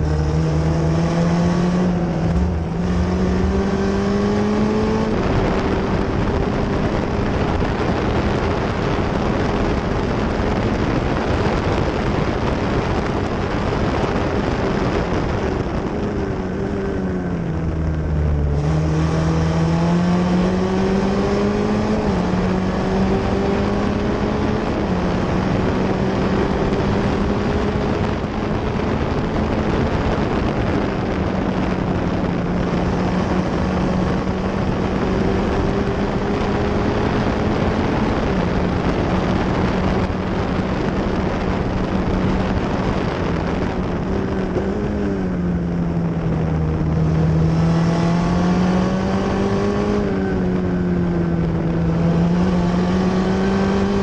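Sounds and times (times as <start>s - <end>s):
racing car engine at high revs: 0.0s - 54.0s
wind noise on microphone: 0.0s - 54.0s.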